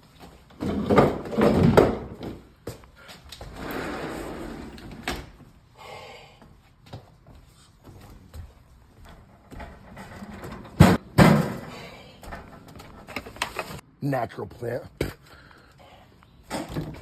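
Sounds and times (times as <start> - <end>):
sliding door rolling on track: 3.5 - 5.1.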